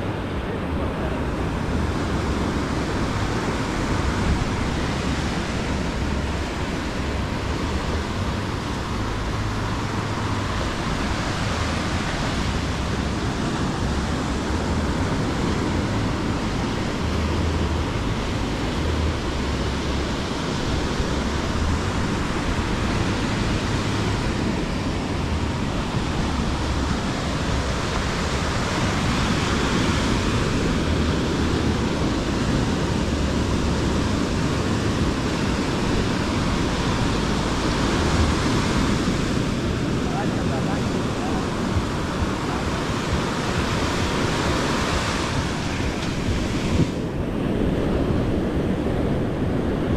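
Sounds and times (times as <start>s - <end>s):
waves breaking on beach: 0.0s - 49.9s
wind buffeting microphone: 0.0s - 49.9s.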